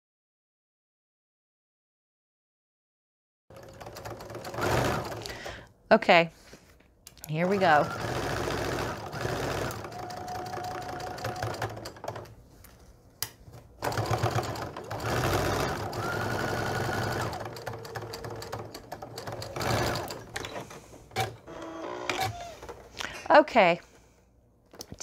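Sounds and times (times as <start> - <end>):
sewing machine stitching: 3.5 - 5.5, 7.4 - 12.3, 13.8 - 22.8.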